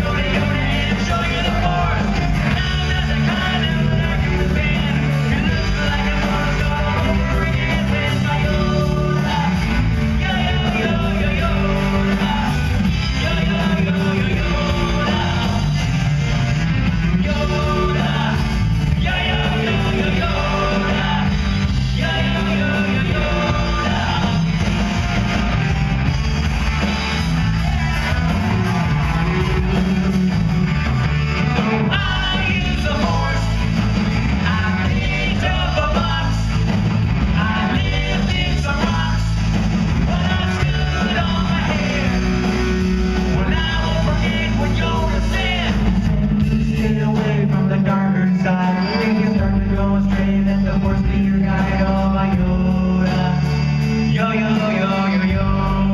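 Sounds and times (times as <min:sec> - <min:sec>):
man singing lead: 0:00.0 - 0:15.9, 0:17.0 - 0:24.9, 0:31.6 - 0:55.9
live rock band playing: 0:00.0 - 0:55.9.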